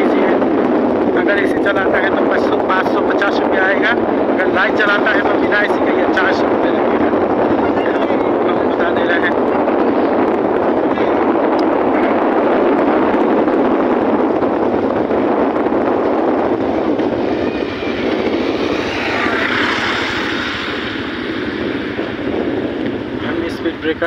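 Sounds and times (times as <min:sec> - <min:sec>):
wind on microphone: 0:00.0 - 0:24.0
motorcycle engine: 0:09.3 - 0:23.9.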